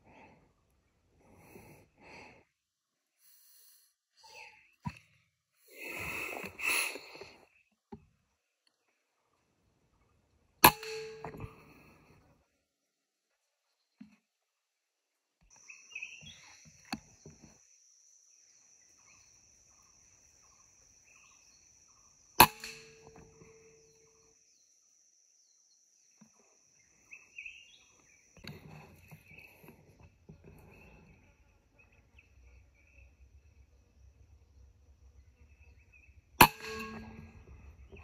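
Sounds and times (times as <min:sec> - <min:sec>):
birds chirping: 0:03.1 - 0:11.9, 0:15.5 - 0:24.8, 0:25.4 - 0:38.0.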